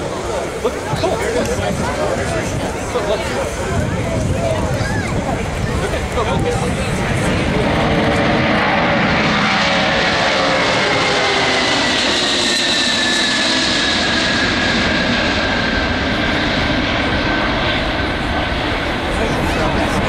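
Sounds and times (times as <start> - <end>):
jet aircraft climbing out: 0.4 - 20.0.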